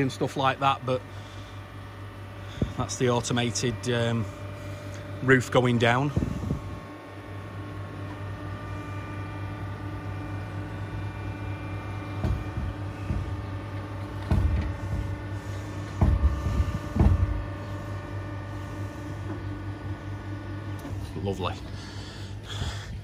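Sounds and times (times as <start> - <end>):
electric motor hum: 0.0 - 23.0
low thumps: 11.8 - 17.8.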